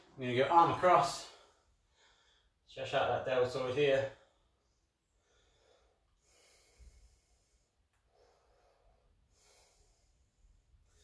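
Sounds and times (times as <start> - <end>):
man breathing slowly: 1.3 - 2.7, 4.2 - 11.0.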